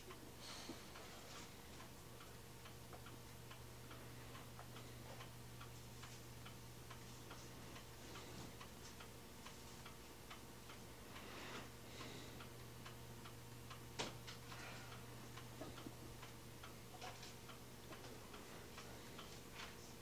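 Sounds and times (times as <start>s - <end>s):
faint steady ticking: 0.0s - 20.0s
low hum and hiss: 0.0s - 20.0s.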